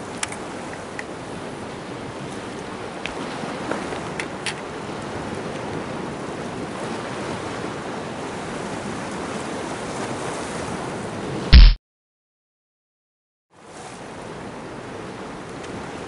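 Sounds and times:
loud brief noise burst: 11.6 - 11.8.

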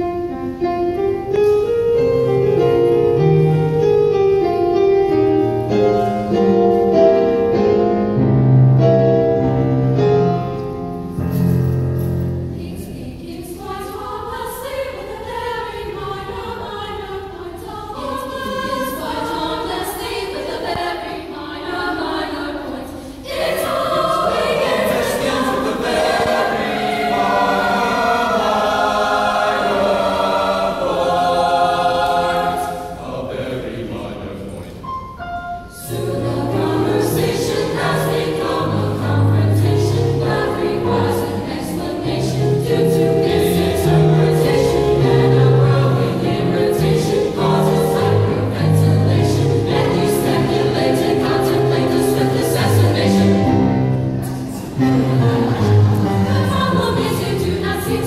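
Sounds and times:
mixed choir singing: 12.1 - 34.6, 35.8 - 58.0.

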